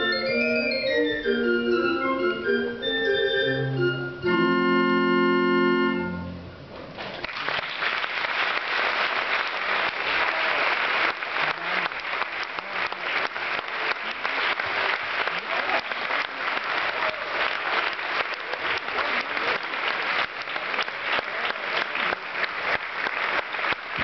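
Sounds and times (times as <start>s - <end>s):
pipe organ chords: 0.0s - 6.6s
audience applause: 7.1s - 24.0s.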